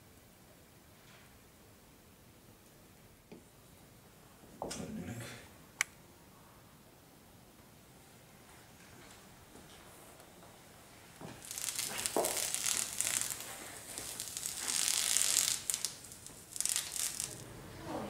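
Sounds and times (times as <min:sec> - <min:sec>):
masking tape being peeled off: 0:11.2 - 0:17.5.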